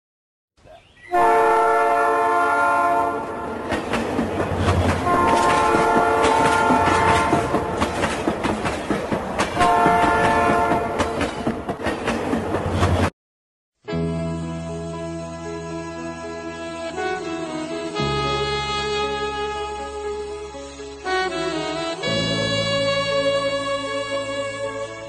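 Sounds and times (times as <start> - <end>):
train horn blasts: 1.1 - 3.8, 5.0 - 8.0, 9.6 - 11.2, 16.5 - 25.0
train wheels clickety-clack: 3.5 - 13.1.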